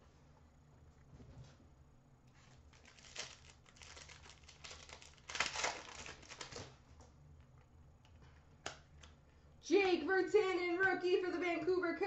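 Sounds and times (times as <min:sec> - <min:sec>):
wrapper crinkling: 0:02.4 - 0:06.8.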